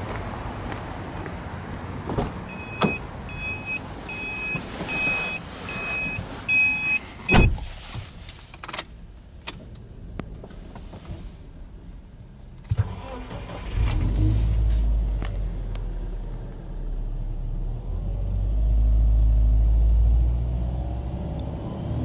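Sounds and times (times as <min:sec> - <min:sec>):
car door shutting: 0:02.1 - 0:03.0, 0:04.2 - 0:07.8
car warning chime beeping: 0:02.5 - 0:07.5.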